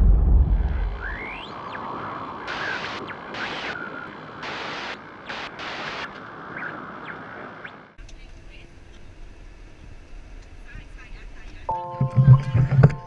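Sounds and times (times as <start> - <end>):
hiss in sharp bursts: 4.4 - 6.1.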